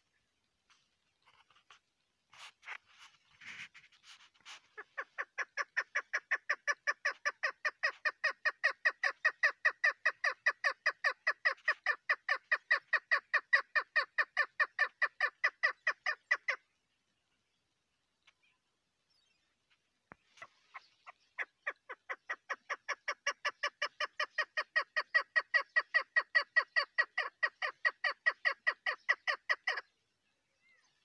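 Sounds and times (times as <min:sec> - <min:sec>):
partridge chuck calls: 0:02.3 - 0:16.7, 0:20.1 - 0:29.9.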